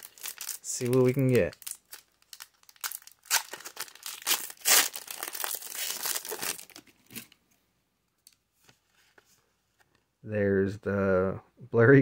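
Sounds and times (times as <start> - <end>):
foil wrapper tearing and crinkling: 0.0 - 6.8.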